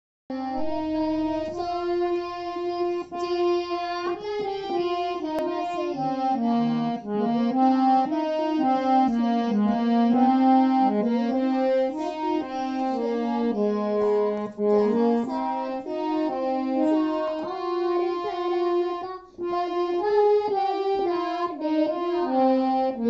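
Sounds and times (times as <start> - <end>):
harmonium melody: 0.3 - 23.0.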